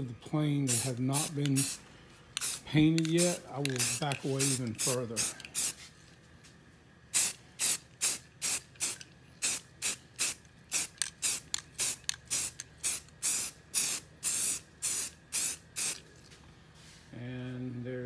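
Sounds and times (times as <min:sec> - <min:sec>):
spray can hissing: 0:00.7 - 0:01.8, 0:02.4 - 0:05.8, 0:07.2 - 0:16.0.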